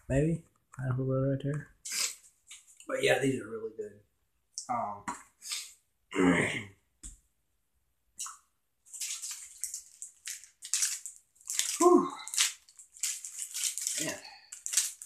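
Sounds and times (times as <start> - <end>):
short vocal sound: 6.1 - 6.7.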